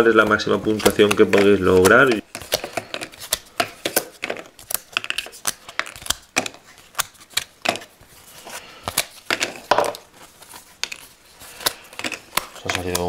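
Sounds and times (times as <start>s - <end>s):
cardboard tiles snapping out: 0.6s - 7.9s, 10.8s - 13.0s.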